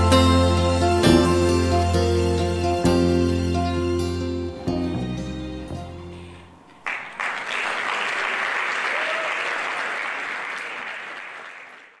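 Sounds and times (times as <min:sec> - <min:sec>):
audience applauding: 0:06.6 - 0:12.0.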